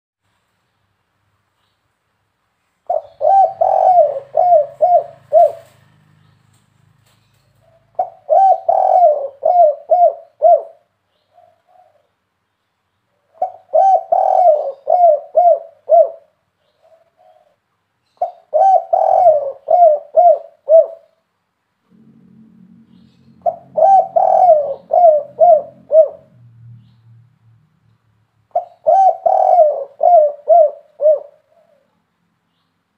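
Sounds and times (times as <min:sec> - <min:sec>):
dove cooing: 0:02.9 - 0:05.9, 0:07.6 - 0:12.1, 0:13.3 - 0:17.6, 0:18.2 - 0:21.2, 0:22.9 - 0:26.4, 0:28.5 - 0:32.0.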